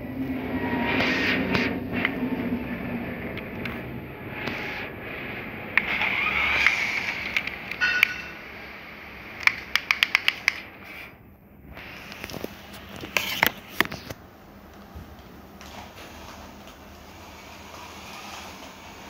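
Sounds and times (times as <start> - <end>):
toy car motor whirring: 5.8 - 7.5
sharp clicks: 9.4 - 10.7.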